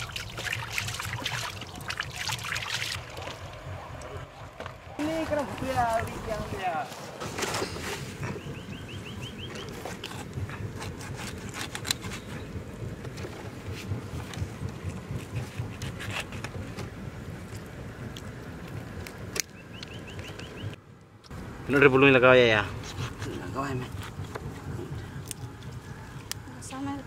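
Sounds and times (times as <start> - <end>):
low rumble: 0.0 - 20.8, 22.6 - 27.0
high rising chirps: 8.3 - 9.8.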